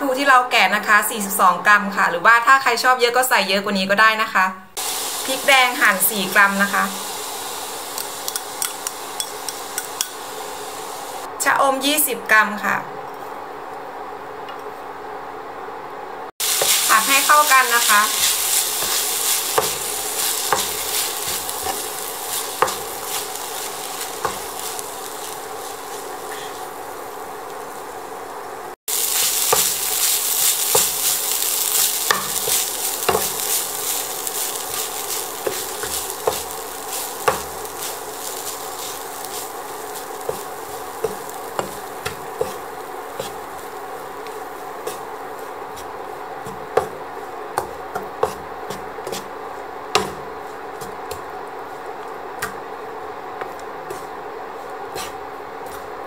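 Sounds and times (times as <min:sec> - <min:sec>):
rice sizzling in a frying pan: 0:04.8 - 0:11.3, 0:16.3 - 0:56.0
spatula scraping and knocking pan: 0:16.4 - 0:27.7, 0:29.0 - 0:52.6, 0:53.4 - 0:55.9.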